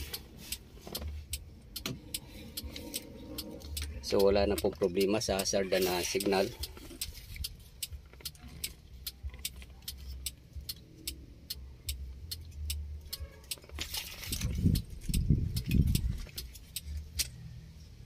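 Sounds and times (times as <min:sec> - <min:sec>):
low rumbling thumps: 0:14.3 - 0:16.4.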